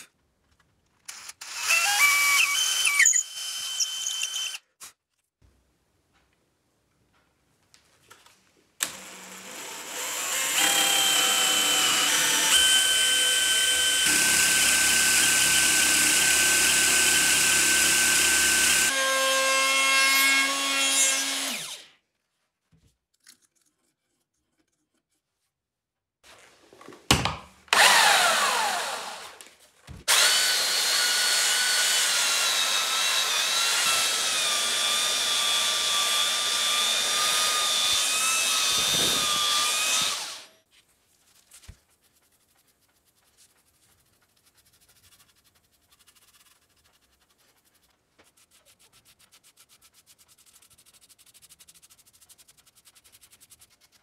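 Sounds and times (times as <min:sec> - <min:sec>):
electric power tool motor whining: 0:08.8 - 0:19.0, 0:27.7 - 0:29.4, 0:30.1 - 0:40.5.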